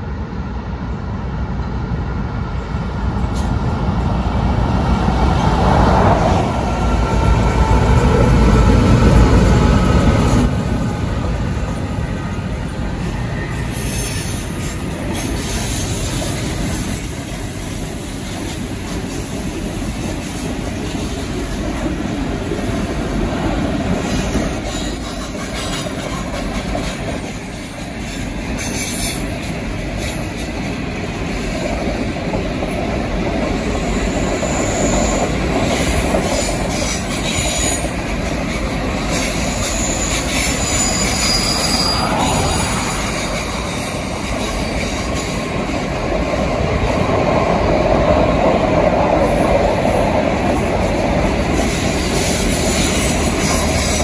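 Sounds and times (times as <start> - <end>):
train wheels clickety-clack on rails: 0.0 - 54.0
high wheel squeals: 13.0 - 19.6, 23.8 - 29.4, 32.7 - 45.4, 51.5 - 54.0.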